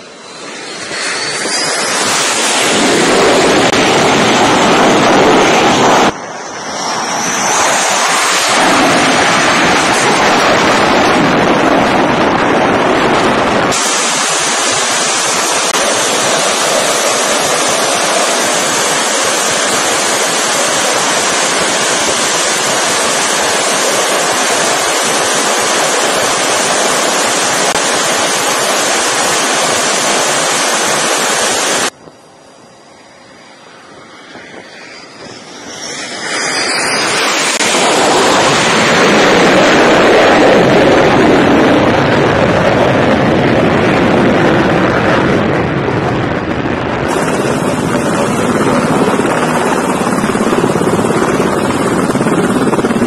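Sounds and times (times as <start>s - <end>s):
high whistle sliding in pitch: 0.0s - 2.8s
helicopter hovering: 0.0s - 53.0s
jet engine afterburner roar: 0.0s - 53.0s.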